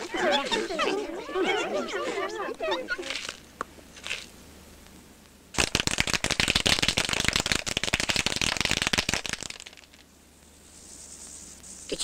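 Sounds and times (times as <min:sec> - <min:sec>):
cartoon crackling rattle: 0:03.0 - 0:03.4, 0:04.0 - 0:04.3, 0:05.6 - 0:10.0.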